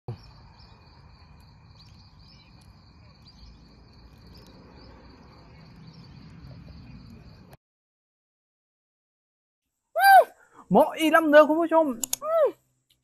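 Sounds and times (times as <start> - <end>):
crickets trilling: 0.1 - 7.6.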